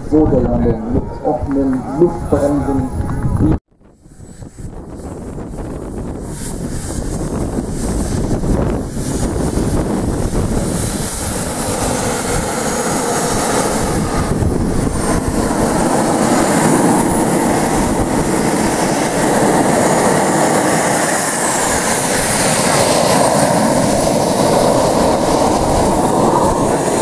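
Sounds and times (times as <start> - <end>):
model jet turbine engines whining: 0.0 - 27.0.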